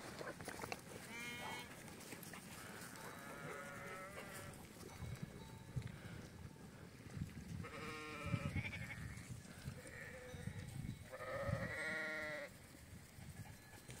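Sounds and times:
sheep bleating: 1.1s - 1.7s, 3.0s - 4.5s, 7.6s - 9.2s, 11.1s - 12.5s.

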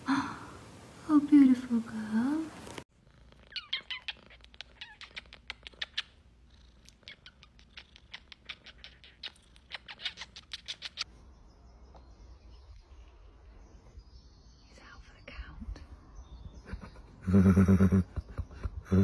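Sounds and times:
cat purring: 2.4s - 11.0s
lip-smacking kisses: 3.9s - 6.2s, 6.8s - 11.1s.

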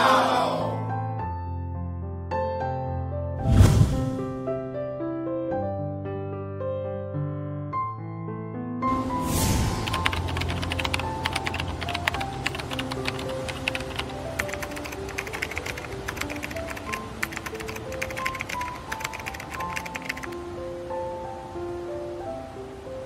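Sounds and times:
soft piano music: 0.0s - 23.0s
whoosh: 3.4s - 4.4s, 8.9s - 10.3s
keyboard typing clicks: 9.9s - 20.3s.

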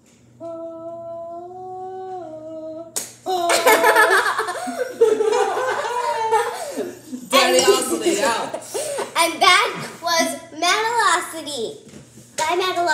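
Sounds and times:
person humming: 0.4s - 3.8s
loud voices: 0.4s - 10.4s
sharp slap: 3.0s - 3.2s.

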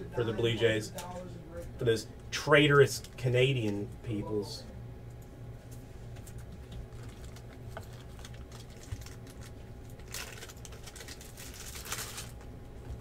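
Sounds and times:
plastic crinkling: 6.2s - 12.5s.

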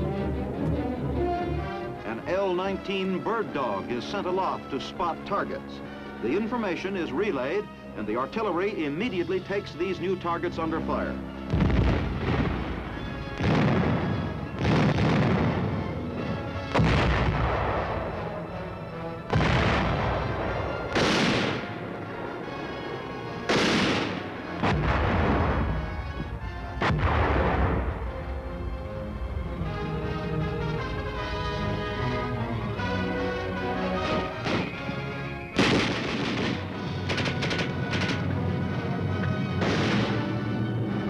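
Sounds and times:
artillery booms: 11.5s - 15.9s, 16.7s - 18.3s, 19.3s - 21.8s, 23.5s - 28.2s, 34.0s - 38.3s, 39.5s - 40.5s.

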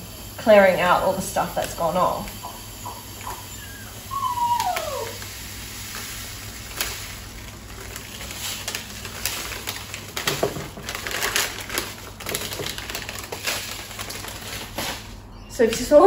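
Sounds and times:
grains pouring into glass jar: 5.6s - 14.8s
plastic packet crinkling: 6.0s - 15.3s.

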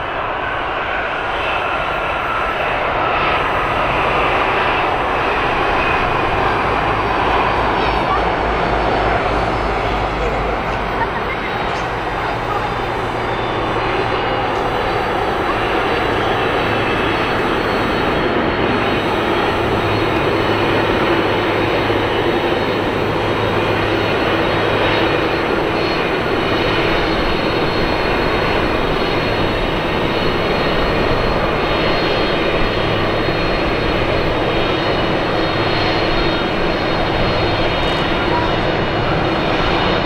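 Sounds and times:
jet engines running: 0.0s - 40.0s
thin high whine: 9.8s - 38.7s.

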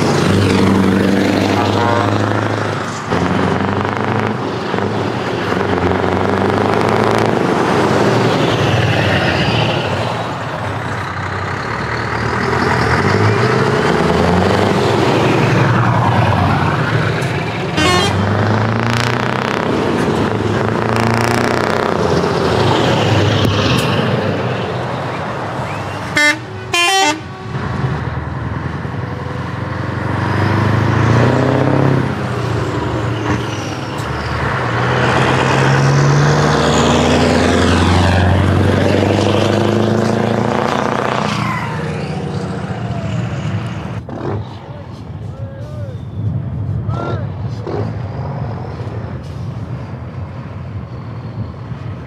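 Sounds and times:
truck diesel engines driving past: 0.0s - 52.0s
air horn blasts: 1.6s - 2.2s, 17.8s - 18.3s, 26.1s - 27.6s.

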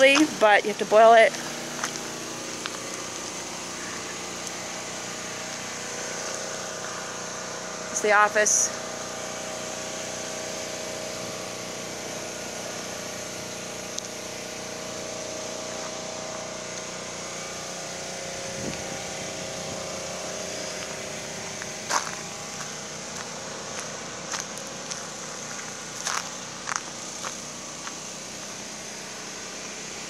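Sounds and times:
footsteps on gravel: 0.0s - 7.3s, 15.5s - 17.4s, 18.4s - 28.6s
generator engine humming: 0.0s - 30.0s.

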